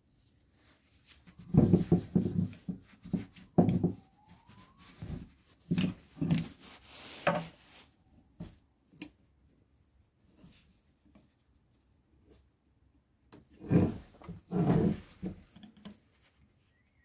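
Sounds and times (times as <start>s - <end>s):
metal knocks on wooden workbench: 1.5s - 2.8s, 3.6s - 4.0s.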